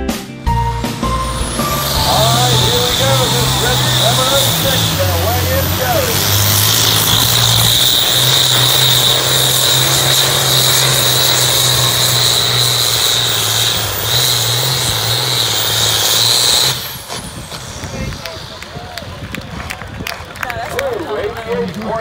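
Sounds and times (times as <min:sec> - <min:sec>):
steady high whine: 0:00.5 - 0:19.2
tractor diesel engine at full throttle: 0:00.5 - 0:20.0.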